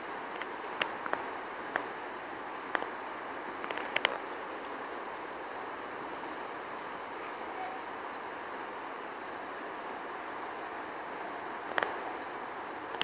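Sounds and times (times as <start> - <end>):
steady outdoor hiss: 0.0 - 13.0.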